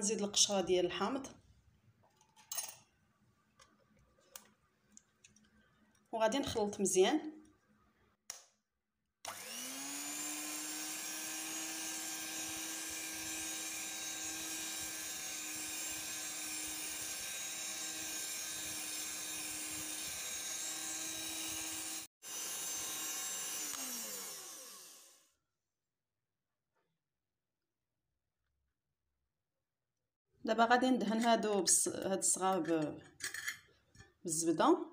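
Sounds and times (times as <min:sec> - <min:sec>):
electric hand mixer whirring: 0:09.3 - 0:25.3.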